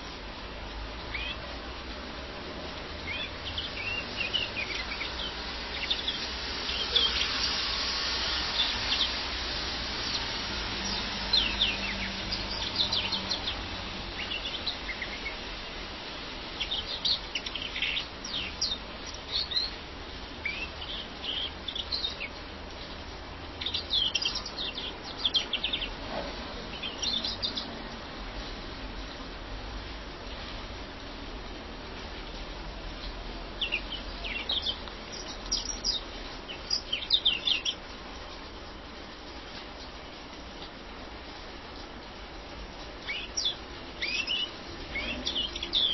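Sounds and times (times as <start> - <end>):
finch chirping and trilling: 1.1 - 1.4, 3.1 - 7.7, 10.0 - 13.6, 14.2 - 15.4, 16.6 - 19.8, 20.4 - 22.4, 23.6 - 26.0, 26.7 - 27.7, 33.6 - 37.8, 43.0 - 45.9.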